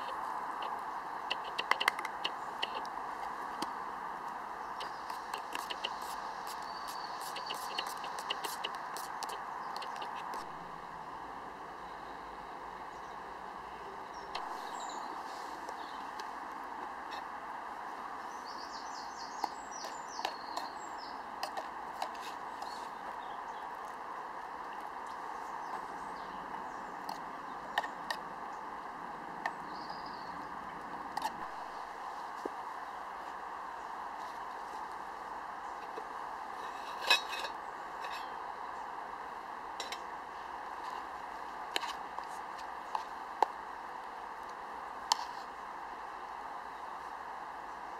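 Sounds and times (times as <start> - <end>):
bird singing: 0.0 - 2.9, 3.5 - 10.7, 11.8 - 16.2, 17.8 - 23.9, 25.0 - 28.8, 29.4 - 31.4
steady background hiss: 0.0 - 47.9
steady background noise: 0.0 - 47.9
metal spoon scraping a mug: 36.7 - 38.3.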